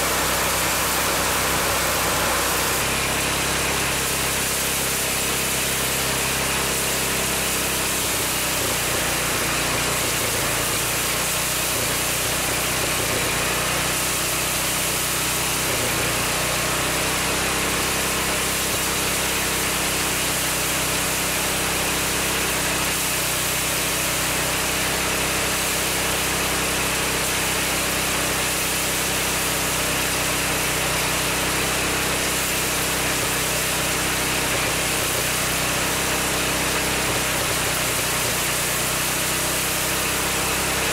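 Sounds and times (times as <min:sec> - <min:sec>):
threshing drum whirring: 0:00.0 - 0:13.9
small gasoline engine droning: 0:00.0 - 0:40.9.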